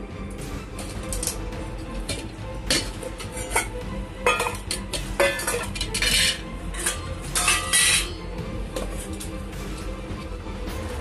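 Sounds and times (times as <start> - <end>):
metal clanking on concrete: 0.8 - 8.2
steel tins and plates clinking: 0.8 - 8.2.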